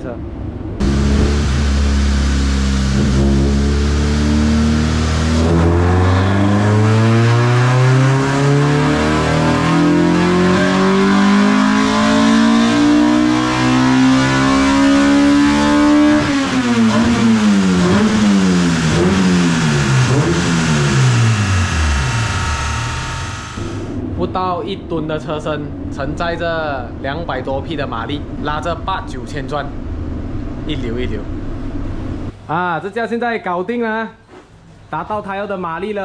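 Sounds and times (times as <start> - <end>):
car engine revving: 0.8 - 24.0.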